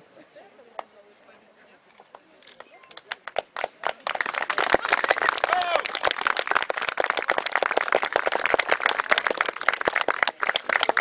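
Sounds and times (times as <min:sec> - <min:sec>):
spectators applauding: 0:02.9 - 0:11.0.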